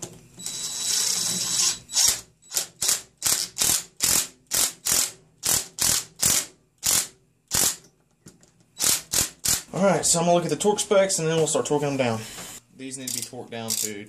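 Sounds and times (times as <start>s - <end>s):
ratchet pawl clicks: 8.8s - 9.7s, 13.0s - 14.0s.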